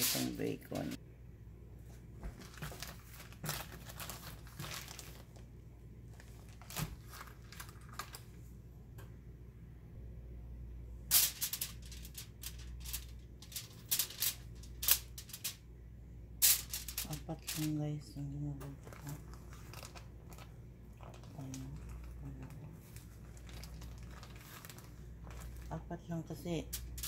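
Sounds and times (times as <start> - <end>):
aluminium foil crinkling: 2.2 - 5.5, 6.1 - 8.4, 11.1 - 15.6, 16.4 - 17.8, 18.6 - 27.0.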